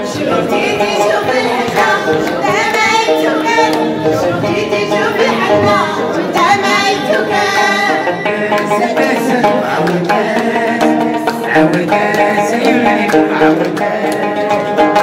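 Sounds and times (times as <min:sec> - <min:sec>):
man singing into microphone: 0:00.0 - 0:15.0
plucked lute: 0:00.0 - 0:15.0
voices singing together: 0:00.0 - 0:15.0
hand-clapping: 0:01.0 - 0:04.2, 0:08.5 - 0:15.0.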